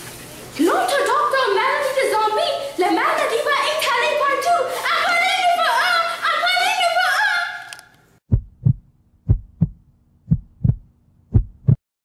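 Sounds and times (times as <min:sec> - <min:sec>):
heartbeat thumps: 0:08.3 - 0:11.8.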